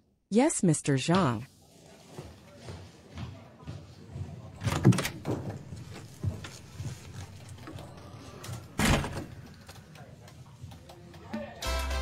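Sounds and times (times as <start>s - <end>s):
soft footsteps: 1.6s - 4.6s, 5.2s - 8.2s.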